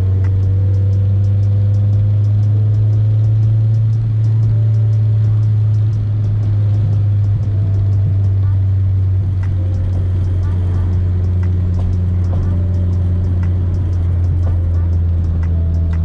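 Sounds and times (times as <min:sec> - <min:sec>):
car engine droning in cabin: 0:00.0 - 0:16.0.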